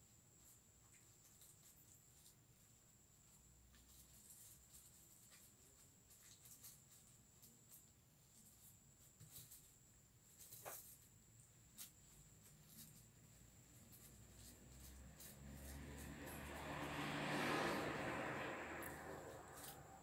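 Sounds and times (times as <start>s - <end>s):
hands rustling and clicking: 3.6s - 17.0s, 18.7s - 20.0s.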